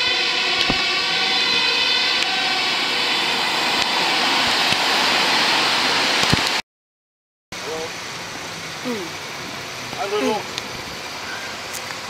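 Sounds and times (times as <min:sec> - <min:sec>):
road traffic rushing past: 0:00.0 - 0:06.6.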